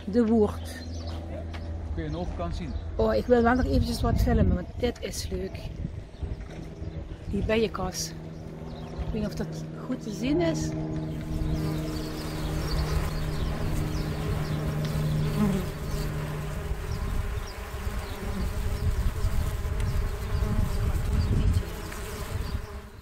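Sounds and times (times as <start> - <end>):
low rumbling noise: 0.0 - 20.2
bees buzzing: 6.3 - 23.0.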